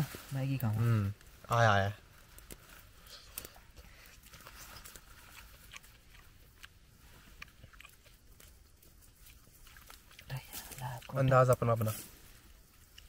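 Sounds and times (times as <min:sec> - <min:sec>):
person chewing noodles: 0:02.4 - 0:11.4, 0:12.5 - 0:13.0.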